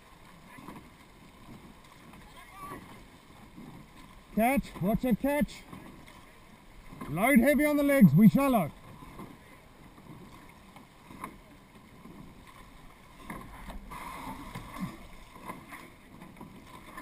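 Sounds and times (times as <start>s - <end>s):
oars pulling through water: 0.0s - 17.0s
water washing past boat hull: 0.0s - 17.0s
light oar knock: 8.8s - 17.0s.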